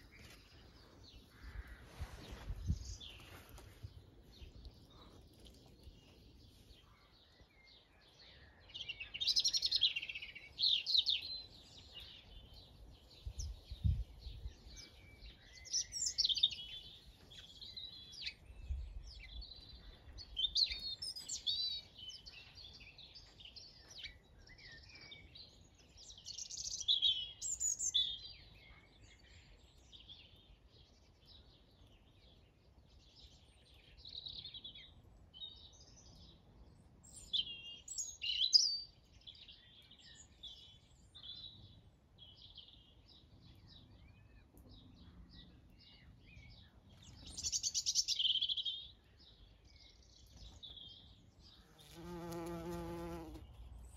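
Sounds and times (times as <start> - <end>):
songbirds chirping: 0.0 - 53.9.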